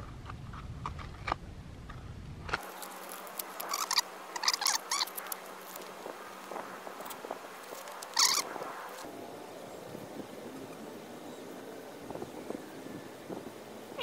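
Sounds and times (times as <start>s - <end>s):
paper wrapper crinkling and tearing: 2.6s - 9.0s.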